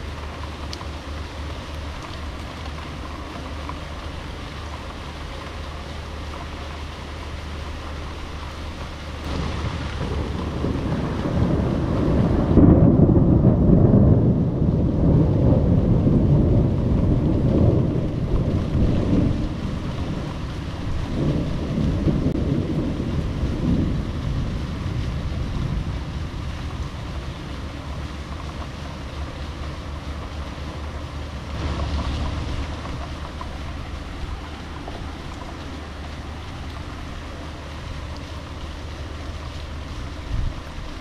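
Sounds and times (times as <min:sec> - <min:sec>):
heavy rain: 0:00.0 - 0:41.0
wind buffeting microphone: 0:08.1 - 0:41.0
thunder rolling: 0:08.7 - 0:41.0.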